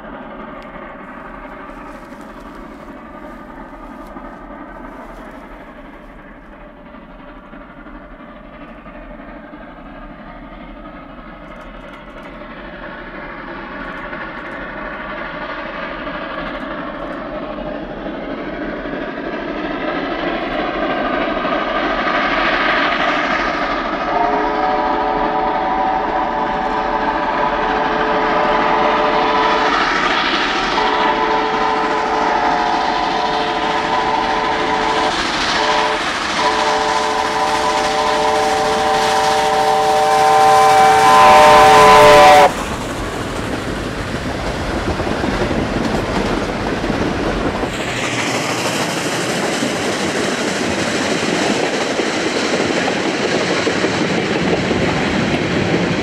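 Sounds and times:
steam locomotive exhaust: 0.0 - 56.0
train chime whistle blasts: 24.1 - 29.8, 30.7 - 42.5.

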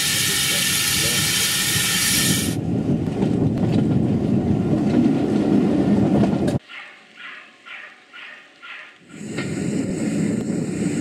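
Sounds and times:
train coach rumbling on track: 0.0 - 6.6.

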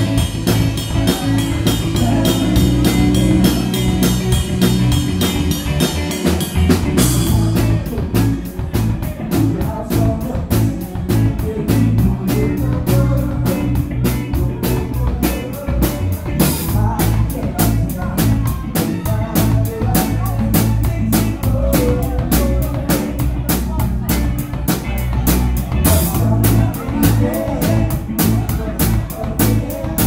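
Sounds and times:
live band playing pop-rock: 0.0 - 30.0.

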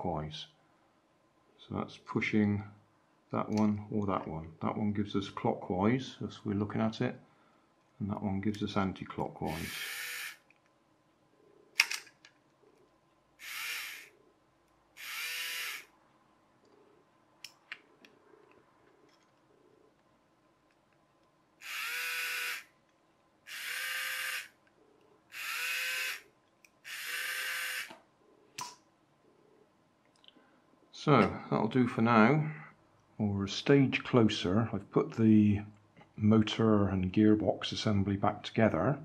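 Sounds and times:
toy motor and gears whirring: 9.5 - 10.4, 13.4 - 14.1, 15.0 - 15.9, 21.6 - 22.7, 23.5 - 24.6, 25.3 - 27.9.

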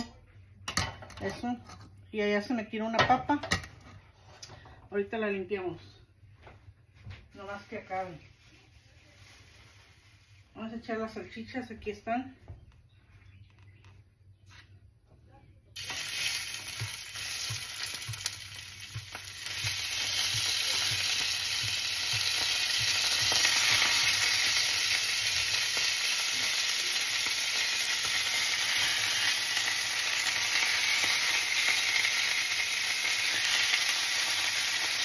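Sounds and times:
sausages sizzling in a frying pan: 15.8 - 35.0.

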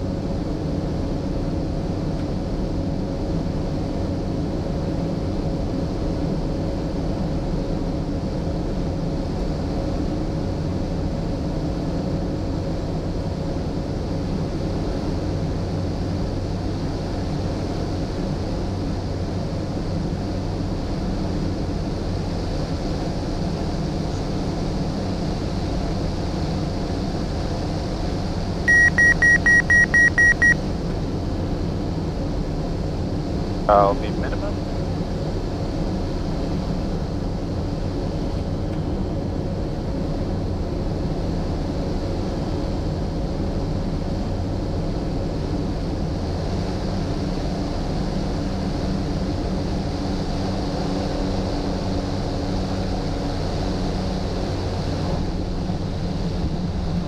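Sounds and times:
turboprop engine droning: 0.0 - 57.0
faint steady tone: 28.7 - 30.6
high beeps: 28.7 - 30.6.

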